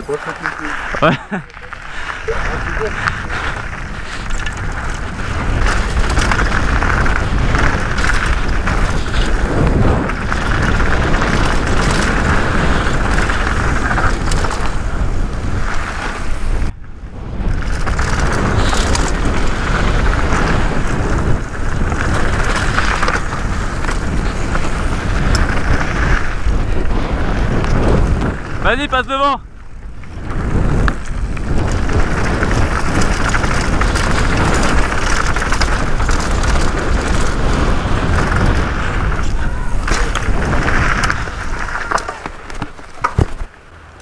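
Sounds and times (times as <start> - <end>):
tyres rumbling on dirt: 0.0 - 44.0
wind rushing over microphone: 0.0 - 44.0
bike knocking over bumps: 29.8 - 43.6.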